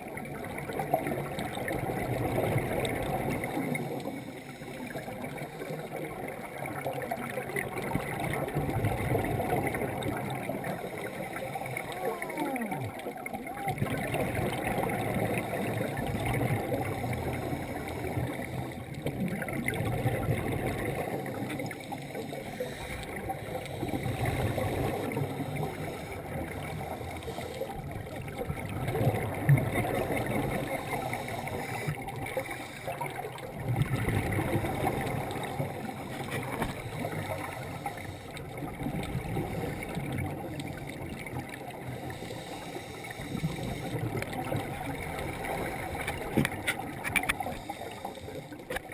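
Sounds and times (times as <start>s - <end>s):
bubbles bursting from regulator: 5.2s - 22.0s, 27.8s - 32.4s, 33.0s - 37.6s
diver breathing underwater: 14.4s - 19.1s, 20.6s - 28.1s, 29.7s - 33.3s, 34.3s - 40.2s, 41.7s - 44.4s, 47.3s - 48.9s.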